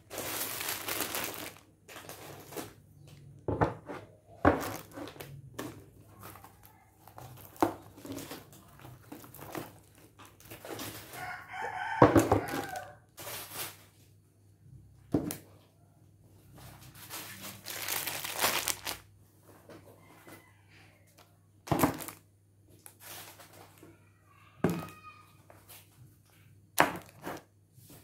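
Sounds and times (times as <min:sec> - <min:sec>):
plastic packets rustling: 0:00.0 - 0:03.3, 0:04.5 - 0:11.7, 0:12.4 - 0:14.0, 0:16.6 - 0:19.1, 0:21.7 - 0:23.8, 0:26.9 - 0:28.0
rooster crowing: 0:11.1 - 0:13.1, 0:19.9 - 0:21.2.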